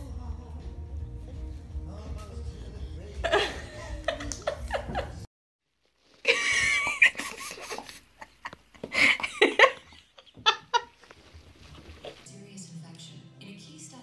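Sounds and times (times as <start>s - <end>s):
person laughing: 3.2s - 5.3s, 6.2s - 11.0s.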